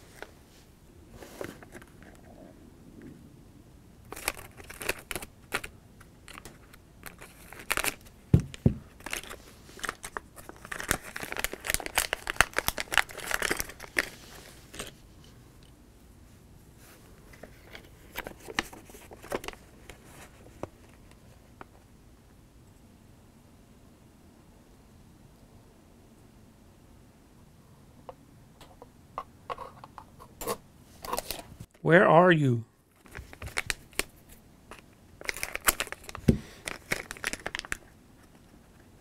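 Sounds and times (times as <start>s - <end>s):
foil packet rustling and crinkling: 4.1s - 15.0s, 17.4s - 21.2s, 32.9s - 39.0s.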